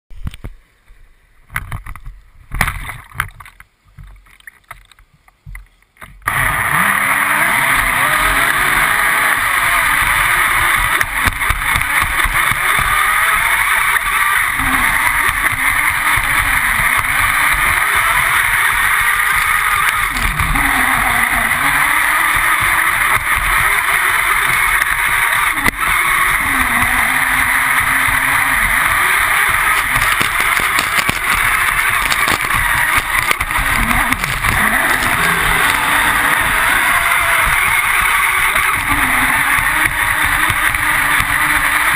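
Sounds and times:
splashes and knocks: 2.5s - 5.0s
motor whine: 6.2s - 41.9s.

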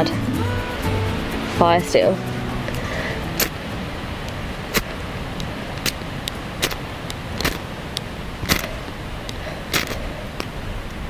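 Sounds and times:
striker scraping fire steel: 4.7s - 5.0s, 5.8s - 7.7s, 8.4s - 10.5s.

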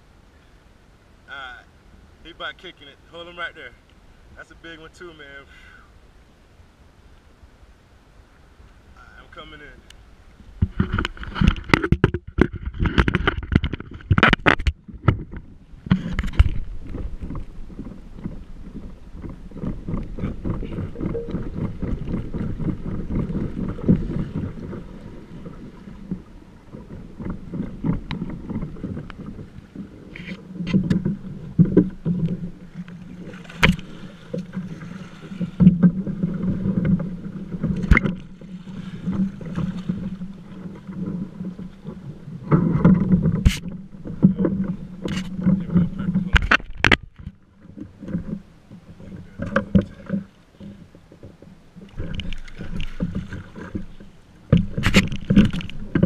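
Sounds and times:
water splashing against a hull: 8.0s - 56.0s
sharp knocks against boat: 30.2s - 38.4s, 42.4s - 56.0s.

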